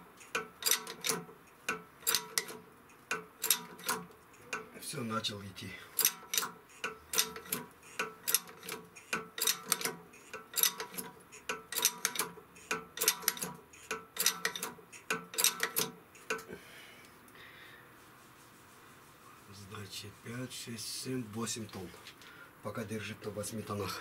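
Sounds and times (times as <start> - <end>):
hydraulic press lever clicking: 0.3 - 4.6, 6.0 - 16.5.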